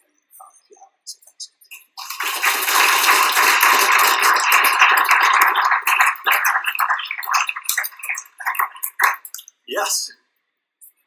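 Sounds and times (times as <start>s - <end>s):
audience applauding: 1.8s - 9.4s.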